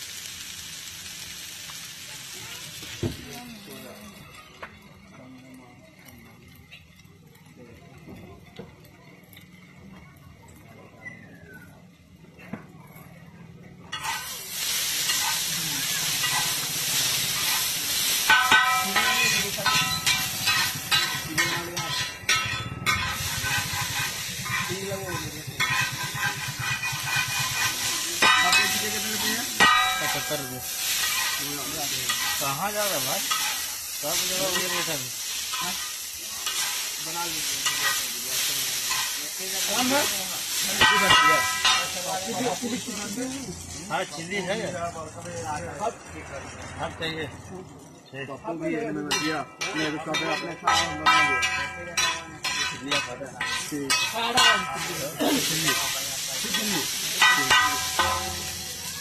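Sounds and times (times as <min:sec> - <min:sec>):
noodles sizzling on griddle: 0:00.0 - 0:59.0
metal utensil scraping griddle: 0:13.8 - 0:44.7, 0:49.0 - 0:59.0.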